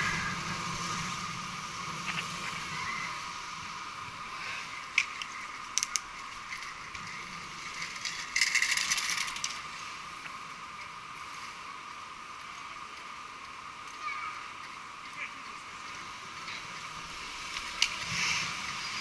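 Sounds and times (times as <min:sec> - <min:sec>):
steady hiss: 0:00.0 - 0:19.0
bicycle freewheel ticking: 0:04.7 - 0:11.1.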